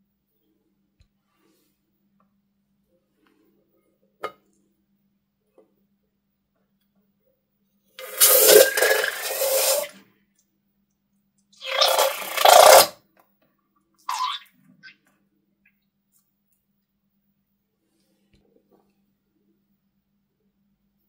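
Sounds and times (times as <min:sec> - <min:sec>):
slime gushing into a bowl: 0:08.0 - 0:10.0, 0:11.6 - 0:12.9.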